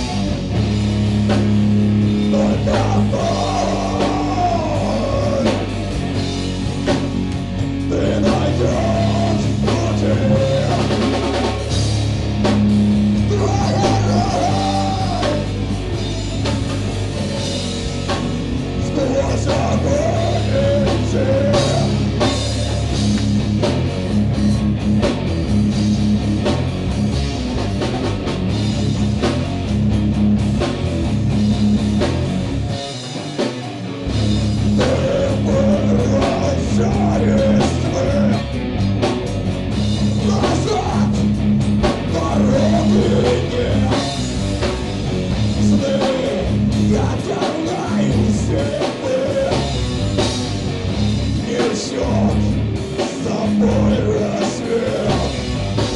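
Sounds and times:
bass guitar: 0.0 - 55.9
distorted electric guitars: 0.0 - 55.9
drum kit: 0.0 - 55.9
person singing: 2.2 - 5.7, 7.9 - 11.2, 13.2 - 15.6, 18.8 - 22.1, 34.8 - 38.5, 40.2 - 41.3, 42.0 - 44.2, 45.6 - 49.8, 51.4 - 55.5.

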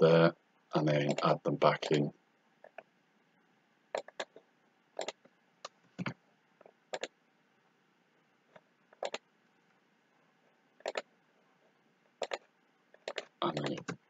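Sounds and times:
quiet room hiss: 0.0 - 14.0
computer mouse clicking: 4.0 - 4.4, 5.0 - 6.1, 6.9 - 7.1, 9.0 - 9.2, 10.8 - 11.1, 12.2 - 14.0.

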